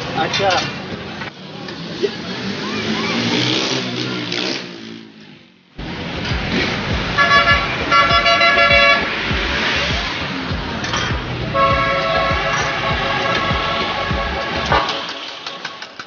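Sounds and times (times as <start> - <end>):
busy street ambience: 0.0 - 16.0
vehicle horn honking: 7.2 - 9.1, 11.5 - 15.5.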